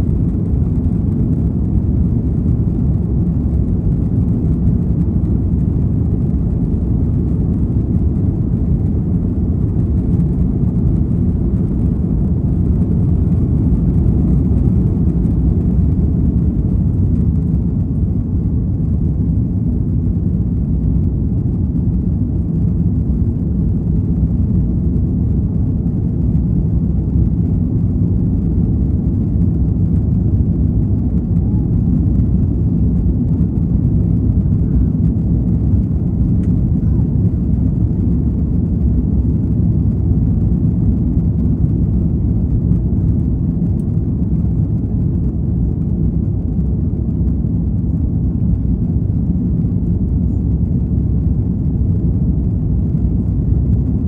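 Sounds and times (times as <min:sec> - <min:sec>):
jet engines rumbling: 0:00.0 - 0:54.0.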